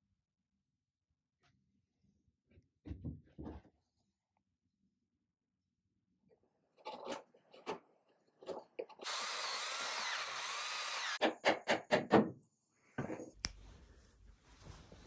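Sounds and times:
drill boring into wood: 9.0 - 11.2.

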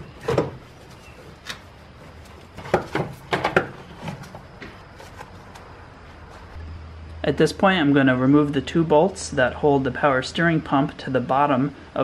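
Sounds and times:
metal clunks and knocks: 0.0 - 0.7, 2.6 - 4.8.

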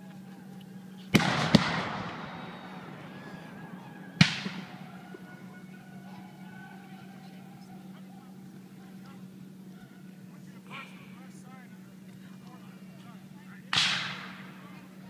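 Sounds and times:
cannons firing loud booms: 1.1 - 5.2, 13.7 - 14.6.

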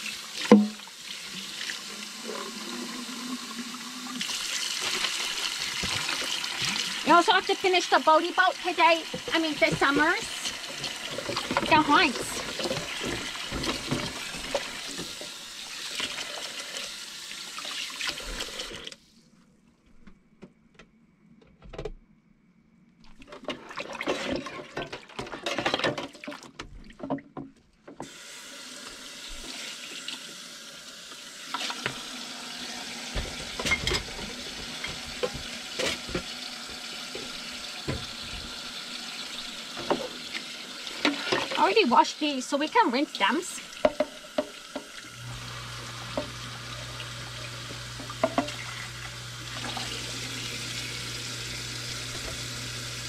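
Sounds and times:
faucet running into sink: 0.0 - 19.0, 28.0 - 53.0
dishes and utensils clinking: 33.1 - 36.3.

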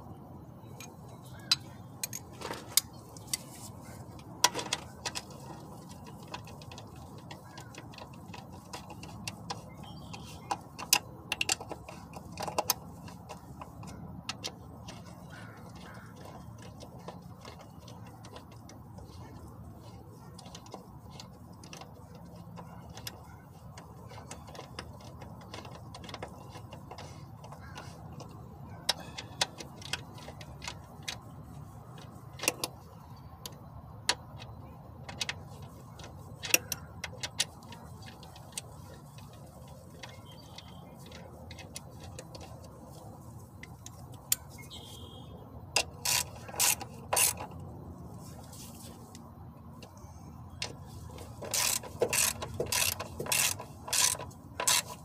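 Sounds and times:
socket wrench ratchet clicks: 45.8 - 47.5, 50.6 - 55.0.

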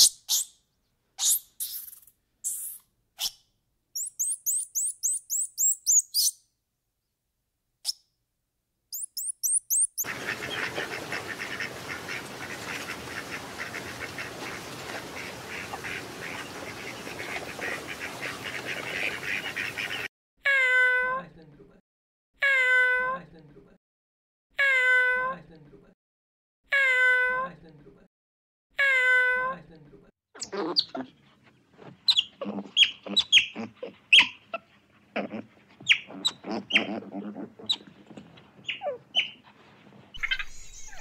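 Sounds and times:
high thin bird chirps: 0.0 - 0.6, 1.2 - 6.4, 8.9 - 10.1, 40.1 - 41.0
chorus of birds calling: 9.8 - 20.1.

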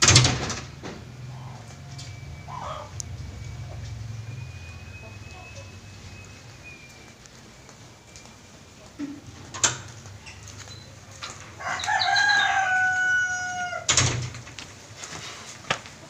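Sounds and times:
rooster crowing: 1.2 - 6.2, 11.3 - 14.0.

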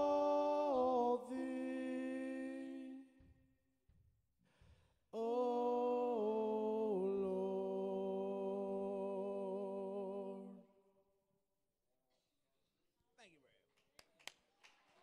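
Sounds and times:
worship song held note: 0.0 - 3.0, 5.2 - 10.6.

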